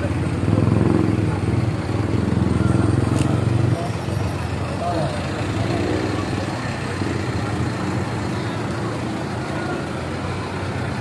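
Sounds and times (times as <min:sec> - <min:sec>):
faint voices: 0:00.0 - 0:11.0
vehicle engine hum: 0:00.0 - 0:11.0.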